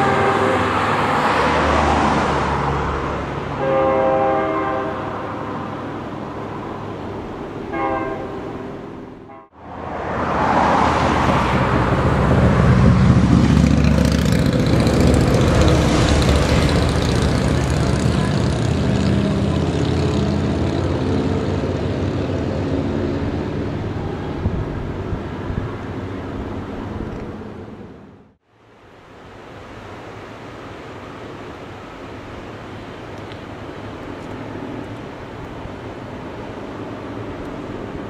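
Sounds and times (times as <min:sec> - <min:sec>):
freight train rumbling past: 0:00.0 - 0:28.3
low engine drone: 0:11.5 - 0:28.4.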